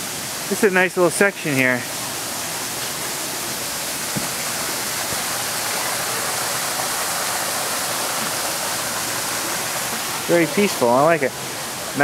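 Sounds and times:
running water rushing: 0:00.0 - 0:12.0
soft knock: 0:04.1 - 0:04.4.

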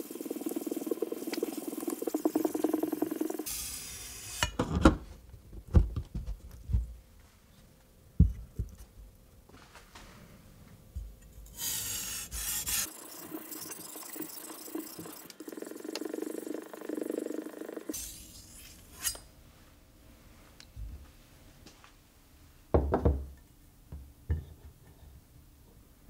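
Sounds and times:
knife rubbing on whetstone: 0:11.6 - 0:12.9
stones knocking on wooden workbench: 0:22.8 - 0:23.3.

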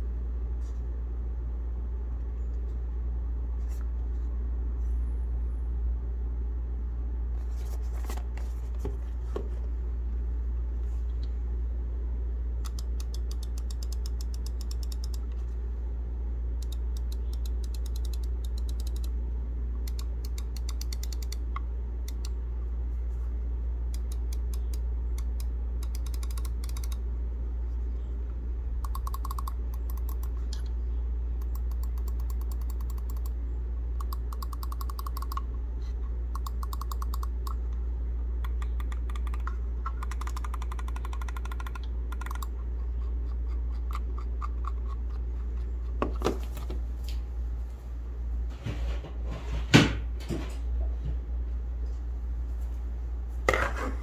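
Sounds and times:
steady low hum: 0:00.0 - 0:54.0
computer mouse clicking: 0:12.6 - 0:15.4, 0:16.6 - 0:19.1, 0:19.8 - 0:22.4, 0:23.9 - 0:27.0, 0:28.8 - 0:30.7, 0:31.4 - 0:33.4, 0:34.0 - 0:35.5, 0:36.3 - 0:37.6, 0:38.4 - 0:46.0.

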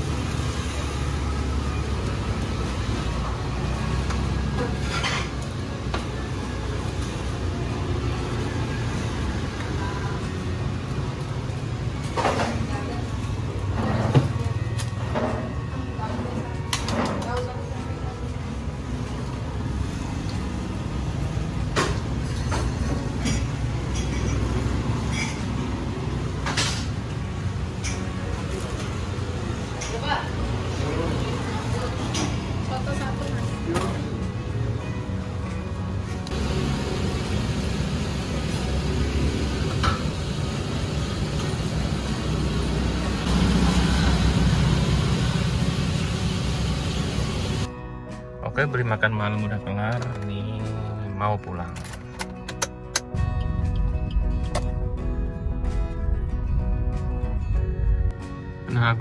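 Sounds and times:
street traffic rumble: 0:00.0 - 0:59.0
vehicle engine running: 0:35.8 - 0:47.7.

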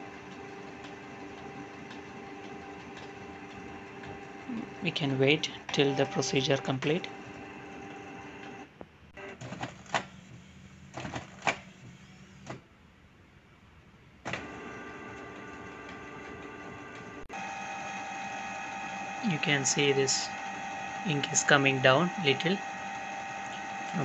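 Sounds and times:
printer motor whirring: 0:00.0 - 0:12.6, 0:14.3 - 0:24.0.

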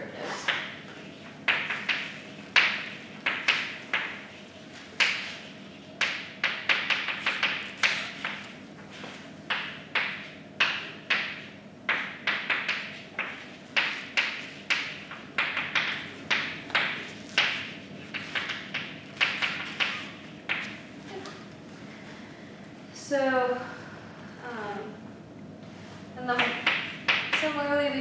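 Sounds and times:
chalk tapping and scratching on blackboard: 0:00.3 - 0:20.8, 0:26.4 - 0:27.5.

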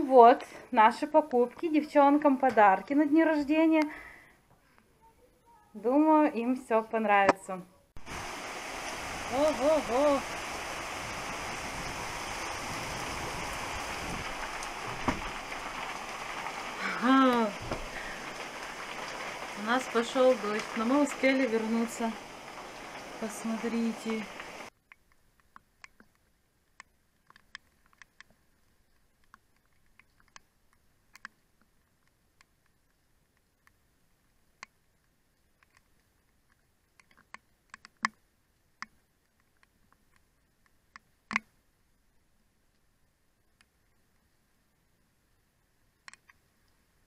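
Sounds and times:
heavy rain through window: 0:08.0 - 0:24.7.

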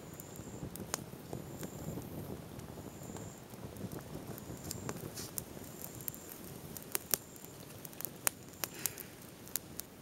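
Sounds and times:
fire popping: 0:00.0 - 0:10.0
twig fire crackling: 0:00.0 - 0:10.0.

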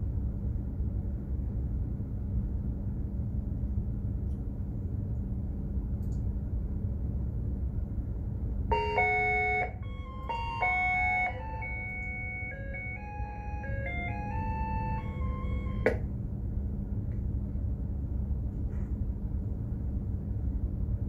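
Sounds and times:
ship engine rumble and hum: 0:00.0 - 0:21.0
electronic chime: 0:08.7 - 0:16.0.

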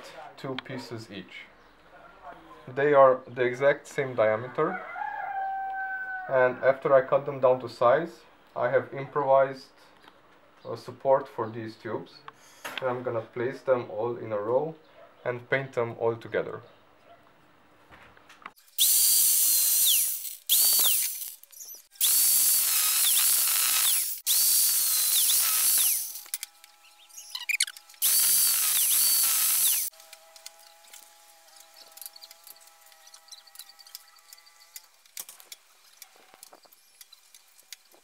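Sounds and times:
angle grinder cutting metal tubes: 0:18.6 - 0:38.0.

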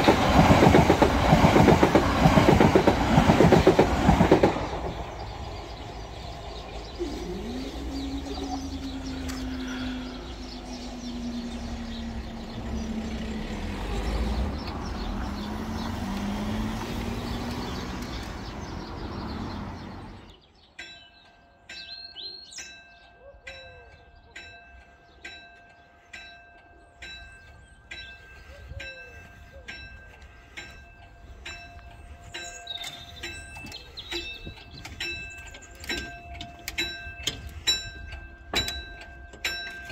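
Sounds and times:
electric train rumble: 0:00.0 - 0:20.4
low wavering hum: 0:04.7 - 0:13.8
level crossing warning alarm: 0:06.8 - 0:12.8.

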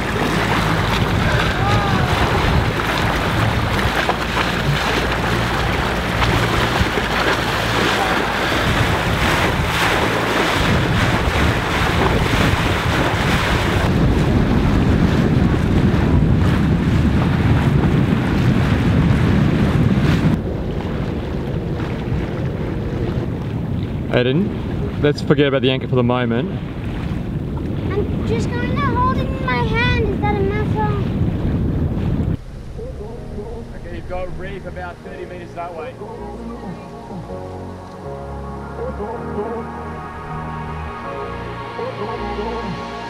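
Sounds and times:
wind buffeting microphone: 0:00.0 - 0:37.8
water rushing alongside boat: 0:00.0 - 0:43.0
low steady hum: 0:32.2 - 0:38.1.

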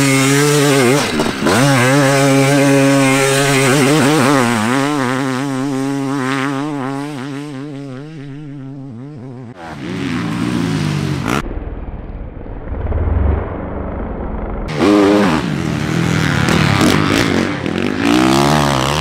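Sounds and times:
motocross bike engine revving: 0:00.0 - 0:11.5, 0:12.6 - 0:19.0
second motocross engine: 0:00.0 - 0:19.0
deep motocross engine rumble: 0:11.2 - 0:16.8.

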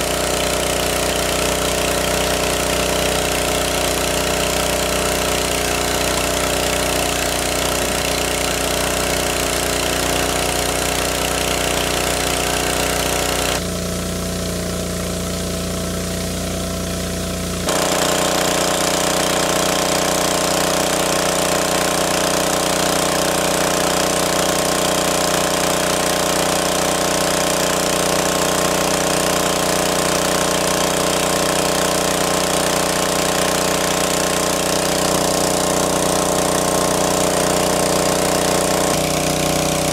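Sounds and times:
water pump engine running: 0:00.0 - 0:39.9.

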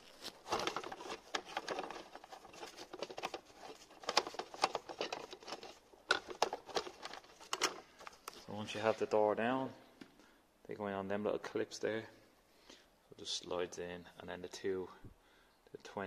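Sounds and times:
panel and screws clicking and rattling: 0:00.5 - 0:08.3.

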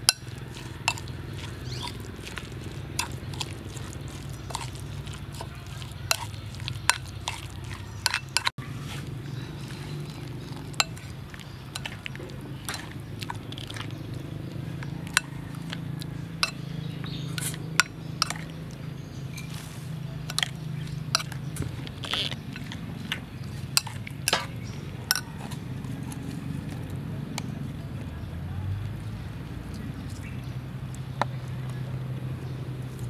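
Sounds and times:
spoon clinking in ceramic bowl: 0:00.0 - 0:08.5, 0:25.1 - 0:26.2.

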